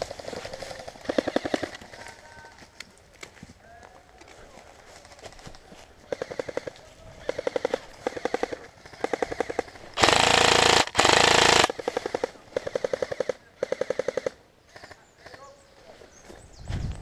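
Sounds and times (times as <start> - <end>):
airsoft rifles firing bursts: 0.0 - 2.0, 6.1 - 14.4
loud close rifle burst: 10.0 - 11.7.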